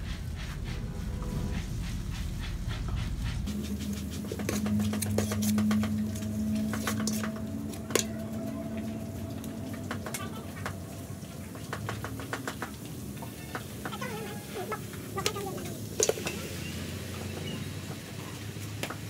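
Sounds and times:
steady low drone: 0:00.0 - 0:13.1
metal ladle scraping pot: 0:03.7 - 0:10.6, 0:16.0 - 0:16.5.

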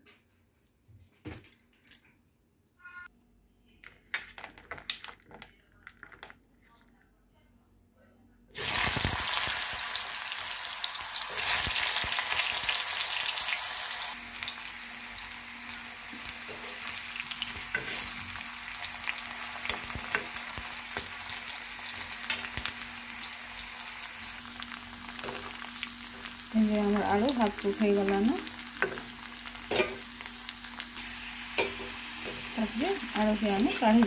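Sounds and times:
potatoes sizzling in hot oil: 0:08.5 - 0:34.0.

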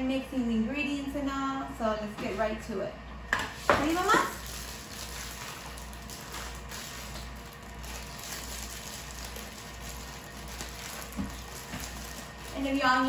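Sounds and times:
background hiss and hum: 0:00.0 - 0:13.0
plastic bag rustling: 0:03.6 - 0:13.0.

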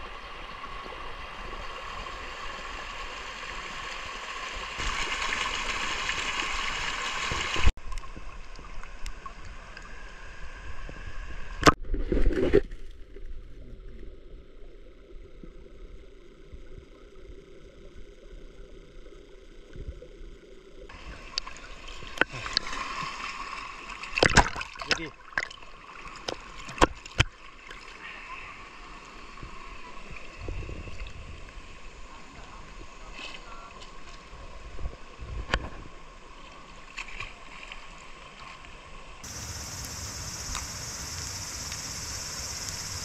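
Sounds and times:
stream burbling over rocks: 0:00.0 - 0:07.7, 0:39.2 - 0:43.0
muffled underwater water sound: 0:00.0 - 0:43.0
water splashing and lapping: 0:01.7 - 0:09.9, 0:20.9 - 0:28.6
sharp underwater knocks: 0:24.2 - 0:25.6.

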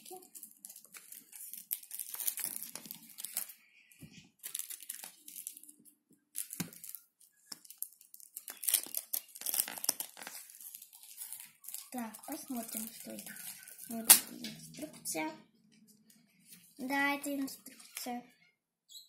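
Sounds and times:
plastic packaging crinkling: 0:00.0 - 0:03.7, 0:04.4 - 0:14.7.

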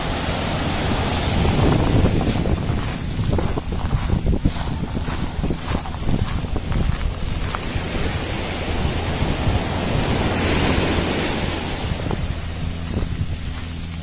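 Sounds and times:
small waves washing on sand: 0:00.0 - 0:14.0
wind buffeting microphone: 0:00.0 - 0:14.0.

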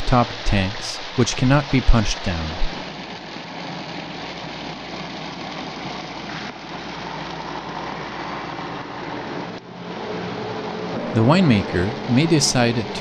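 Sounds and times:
liquid gushing and splashing: 0:00.0 - 0:13.0
pump running: 0:00.0 - 0:13.0.

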